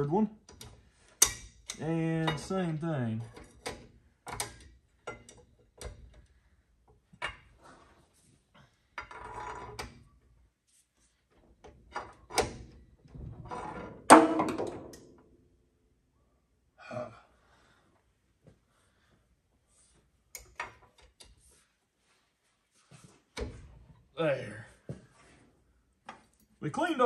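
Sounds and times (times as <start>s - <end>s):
metal clicks and knocks: 0.4s - 2.6s, 3.2s - 7.6s
loud metal clank: 14.1s - 14.9s.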